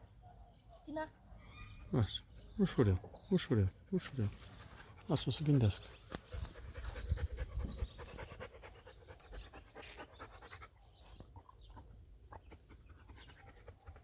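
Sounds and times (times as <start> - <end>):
dog panting: 3.0 - 14.0.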